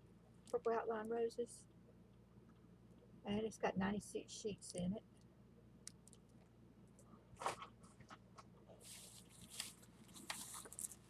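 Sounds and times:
plastic packaging crinkling: 8.8 - 11.0.

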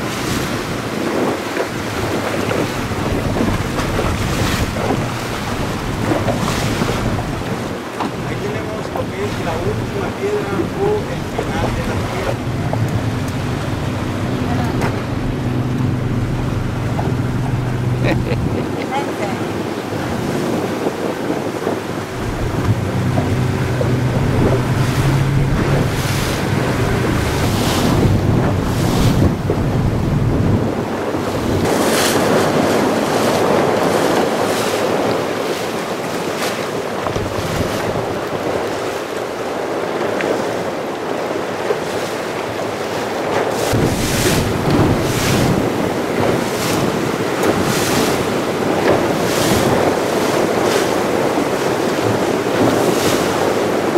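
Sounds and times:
water splashing along boat hull: 0.0 - 53.9
wind buffeting microphone: 0.0 - 53.9
low motor hum: 2.8 - 19.4, 21.9 - 31.7, 43.7 - 48.0.

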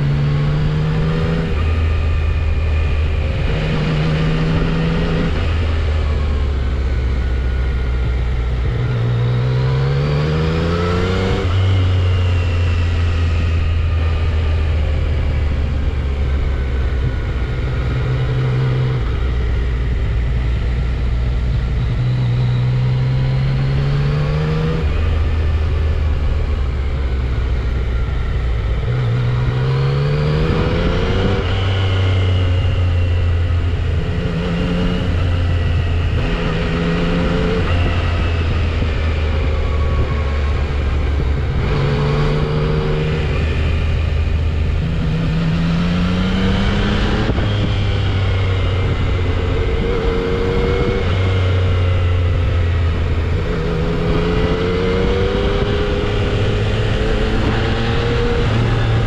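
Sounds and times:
motorcycle engine accelerating: 0.0 - 59.0
wind and road noise: 0.0 - 59.0.

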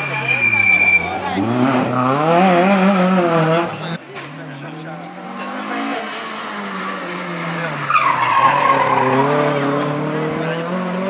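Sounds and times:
tyres squealing: 0.0 - 1.5, 6.6 - 9.8
rally car engine: 0.0 - 11.0.

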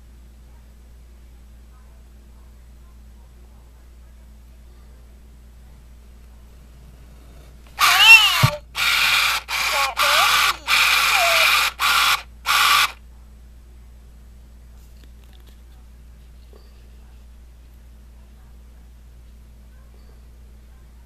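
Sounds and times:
toy motor whirring: 7.7 - 13.0
toy chattering in electronic voice: 7.8 - 13.0.

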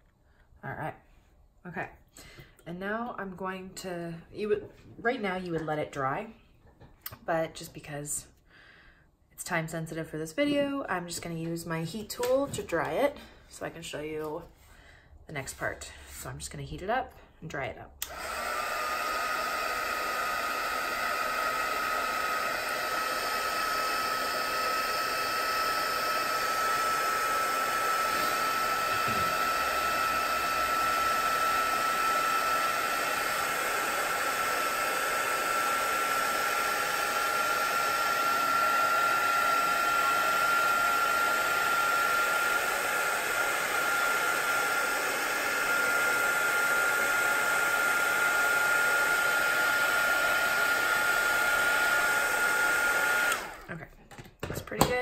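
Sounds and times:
heat tool blowing air: 18.0 - 53.7.

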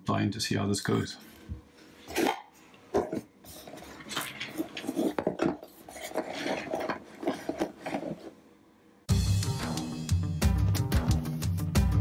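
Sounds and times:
plastic scraping and clattering: 2.9 - 8.4.

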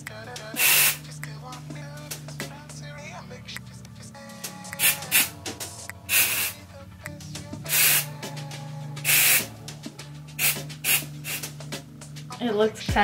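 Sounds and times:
aerosol spray hissing: 0.6 - 1.0, 4.8 - 5.4, 6.1 - 6.6, 7.7 - 8.2, 9.0 - 9.6, 10.4 - 11.6.

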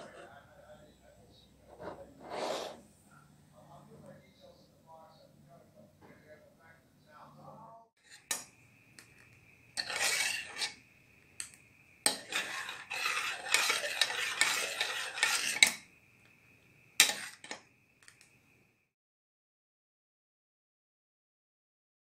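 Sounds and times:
metal spoon scraping a pot: 0.0 - 0.3, 1.7 - 2.9, 8.0 - 8.5, 9.7 - 10.8, 11.4 - 15.9, 17.0 - 17.6
faint high whine: 0.0 - 19.0
spoon clinking on pot: 11.4 - 15.8, 17.0 - 17.6.

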